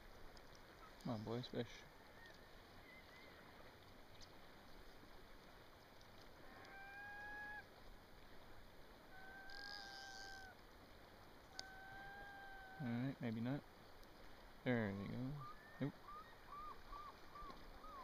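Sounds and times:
long whistled calls: 15.3s - 18.0s.

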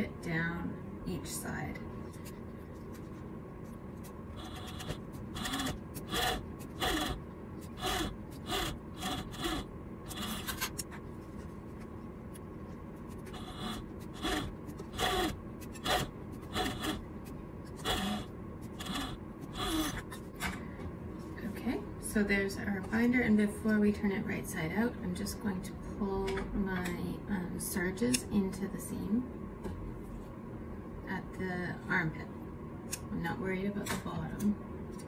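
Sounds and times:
steady machine hum: 0.0s - 35.0s
sewing machine stitching bursts: 4.4s - 10.7s, 13.2s - 17.0s, 17.8s - 20.0s.

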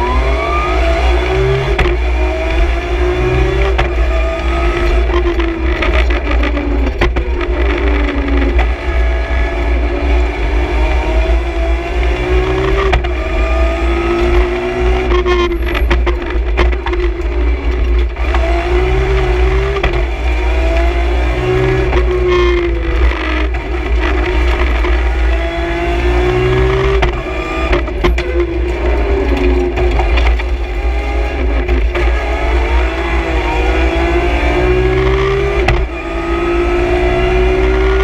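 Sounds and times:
deep road rumble: 0.0s - 38.0s
rally car engine revving: 0.0s - 38.0s
sharp clicks and rattles: 3.4s - 8.9s, 12.1s - 36.0s.

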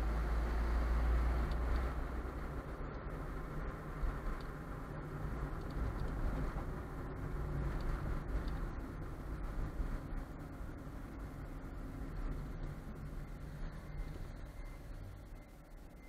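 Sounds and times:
car engine and tyre noise: 0.0s - 16.0s.

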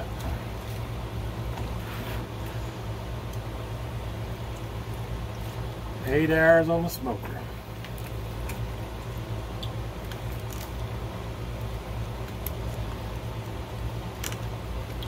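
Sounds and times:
steady low hum: 0.0s - 15.0s
meat being pulled apart: 7.8s - 10.9s.

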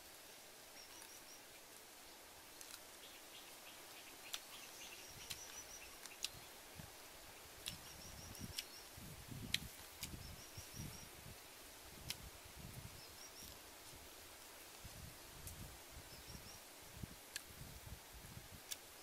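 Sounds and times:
faint outdoor background: 0.0s - 19.0s
bird chirping: 0.3s - 1.6s, 3.0s - 6.6s, 7.4s - 9.0s, 10.1s - 11.2s, 16.1s - 16.7s.

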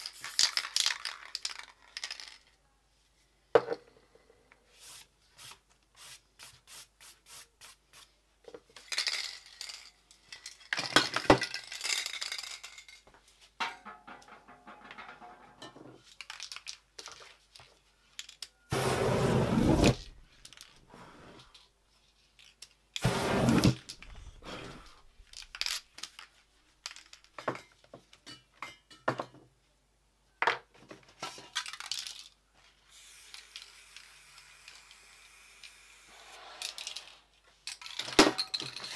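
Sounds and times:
spray can rattling: 0.0s - 2.4s, 25.2s - 26.2s, 32.9s - 38.8s
flame bursts: 23.0s - 24.9s, 36.0s - 37.2s
paint spraying hiss: 32.9s - 37.2s.

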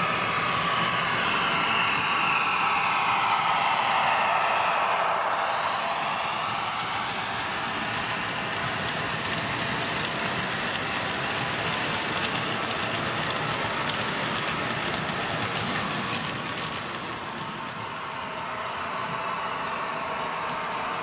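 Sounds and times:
model train wheels rattling on rail: 5.8s - 18.4s.

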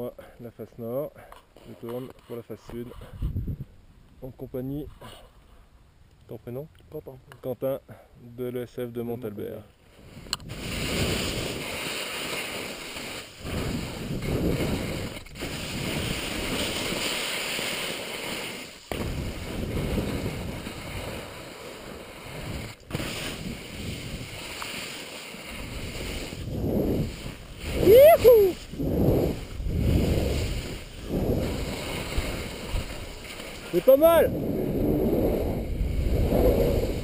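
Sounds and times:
wind on microphone: 2.9s - 3.8s, 13.4s - 17.0s, 18.9s - 21.3s, 22.2s - 24.5s, 25.5s - 37.0s
skis hissing through snow: 9.9s - 37.0s.

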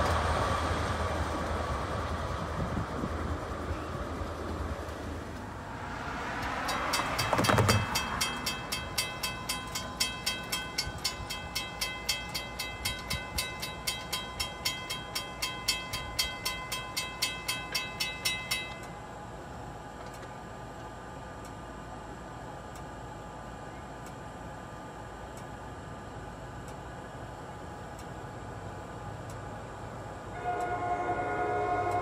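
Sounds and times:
crossing bell ringing: 6.5s - 19.2s, 30.3s - 32.0s.

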